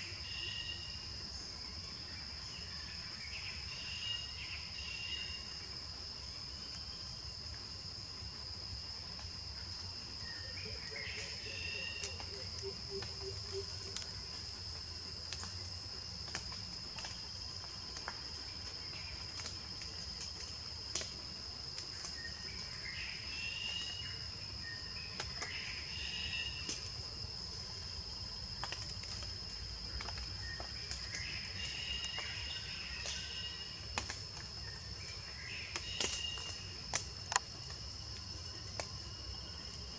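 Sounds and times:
insects droning: 0.0s - 39.9s
sharp clicks and snaps: 36.0s - 37.8s.

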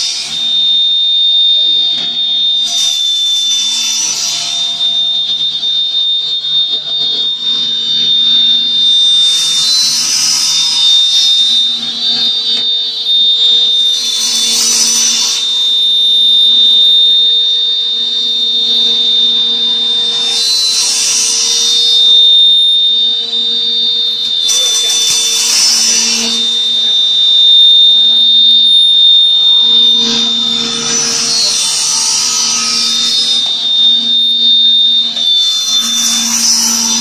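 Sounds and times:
machine whine and hum: 0.0s - 37.0s.

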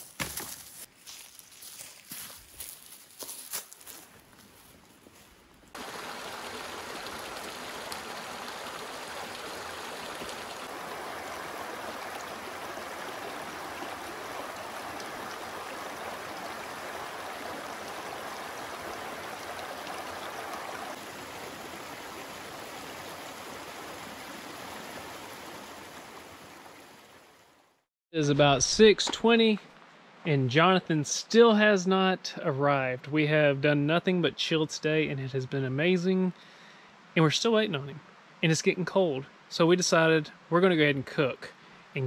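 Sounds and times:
creek water pouring over rocks: 5.8s - 27.4s.

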